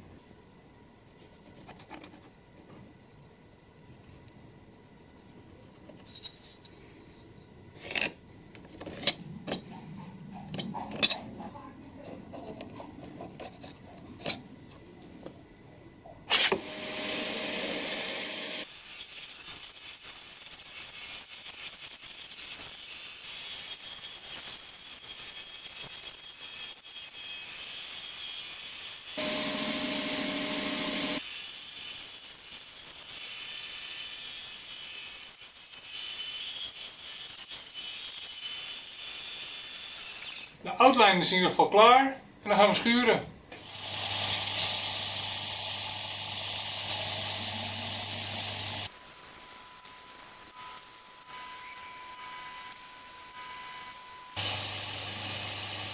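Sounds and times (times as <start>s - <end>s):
pencil scratching along ruler: 1.2s - 2.4s
bandsaw cutting wood: 16.3s - 20.4s, 29.2s - 31.3s, 43.6s - 49.0s, 54.4s - 55.9s.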